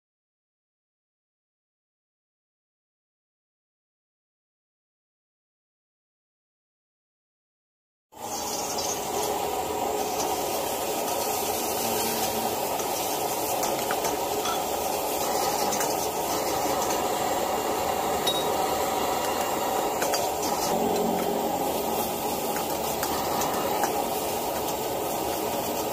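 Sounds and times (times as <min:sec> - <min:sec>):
food sizzling in wok: 0:08.2 - 0:25.9
gas burner roar: 0:08.2 - 0:25.9.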